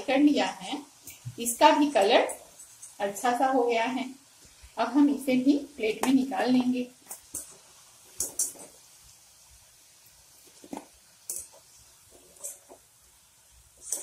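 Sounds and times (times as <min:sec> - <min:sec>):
hot frying oil hissing: 0:00.0 - 0:14.0
strainer scraping fried potatoes: 0:10.4 - 0:12.9, 0:13.7 - 0:14.0.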